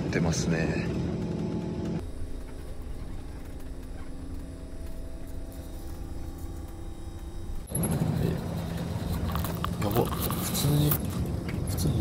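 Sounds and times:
bus interior rumble: 0.0 - 12.0
faint steady hum: 2.0 - 11.0.

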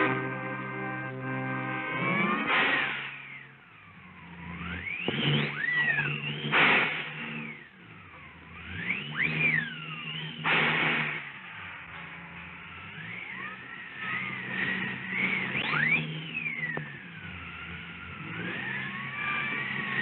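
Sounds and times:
low sustained music: 0.0 - 2.6.

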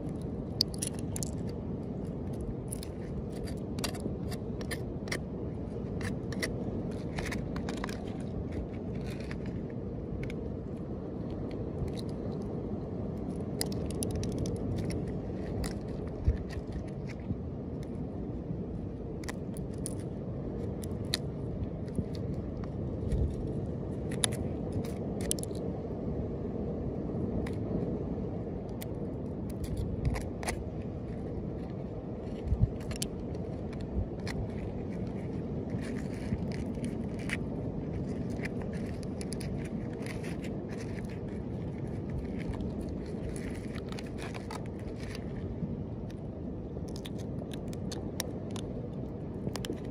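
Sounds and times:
low rumbling background: 0.0 - 49.9
knife scraping turtle shell: 0.6 - 9.6, 32.4 - 45.4.

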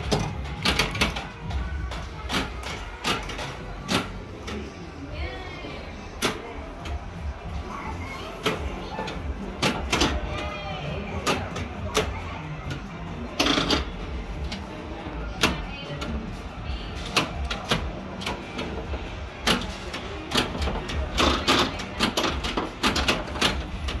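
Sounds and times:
pinball machine clacking: 0.0 - 4.8.

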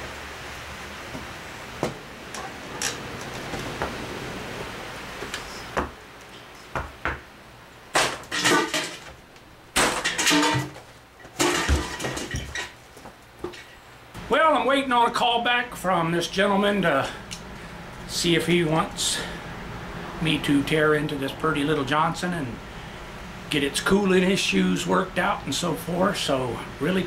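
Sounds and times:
metal pail clanking: 8.0 - 9.2, 9.8 - 12.8.

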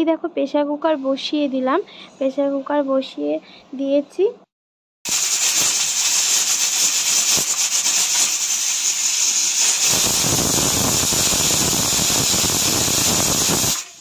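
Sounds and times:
pressure cooker steam hissing: 5.1 - 14.0.

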